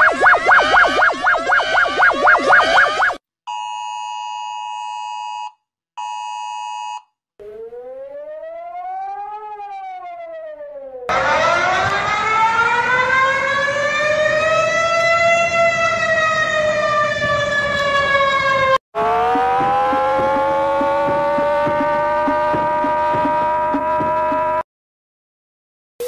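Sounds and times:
loud alert siren: 0.0 - 3.2, 6.2 - 24.6
rising and falling alert tone: 0.0 - 3.2, 7.4 - 14.8, 18.4 - 24.6
siren wail over fast pulse: 0.0 - 3.2, 7.4 - 24.6.

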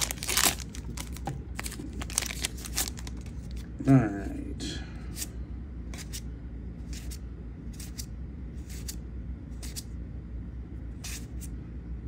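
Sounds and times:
steady low hum: 0.0 - 12.0
cards swishing against each other: 5.9 - 9.9, 11.0 - 11.6.

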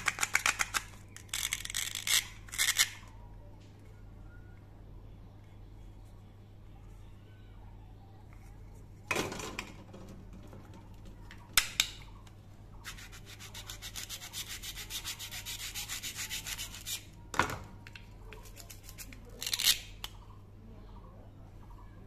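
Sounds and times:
hard plastic pieces clacking: 0.0 - 3.0.

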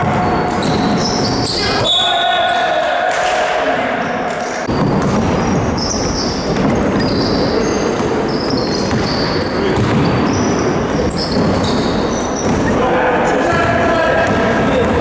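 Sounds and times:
sneakers squeaking on wooden court: 0.0 - 2.0, 4.7 - 15.0
basketball dribbling: 4.7 - 12.8, 13.4 - 15.0.

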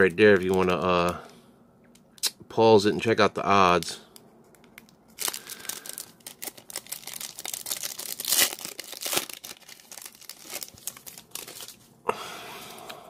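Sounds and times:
foil pack crinkling and tearing: 4.5 - 11.9.

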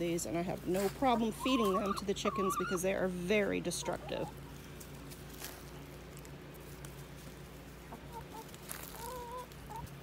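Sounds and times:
chickens clucking: 0.2 - 10.0.

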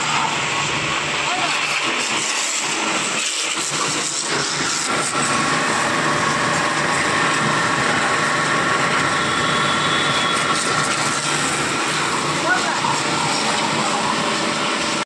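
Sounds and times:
pressure washer running: 0.0 - 15.0
faint steady whine: 4.3 - 15.0.

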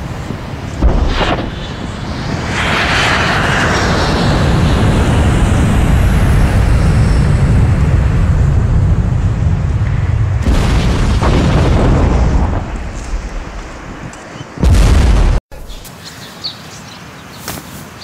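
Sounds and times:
jet engines rumbling: 0.0 - 15.8
explosion blast: 0.8 - 6.6, 7.5 - 14.0, 14.6 - 15.4.

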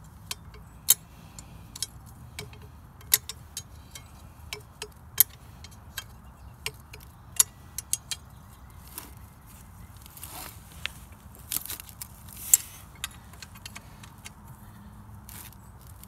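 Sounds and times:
wrench clicking on bolts: 0.0 - 8.4, 12.5 - 14.4.

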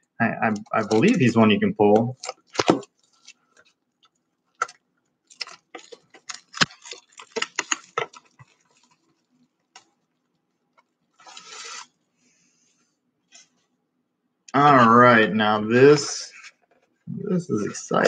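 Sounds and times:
shrink wrap tearing rustle: 0.5 - 10.1, 11.1 - 12.0
shrink wrap crackling: 0.5 - 12.0.

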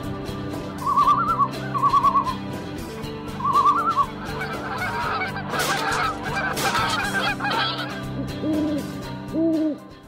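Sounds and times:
geese honking: 3.3 - 9.0.

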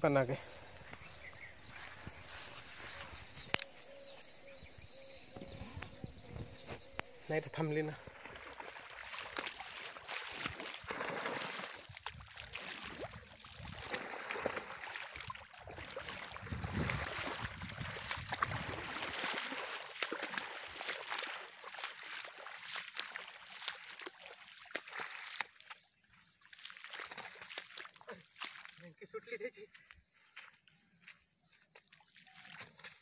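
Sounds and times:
water splashing from wading: 6.3 - 28.9
fish thrashing in water: 8.0 - 25.6.

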